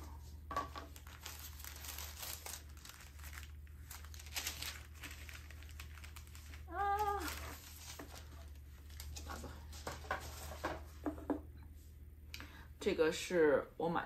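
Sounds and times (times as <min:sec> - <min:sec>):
tissue paper rustling: 0:00.9 - 0:10.7.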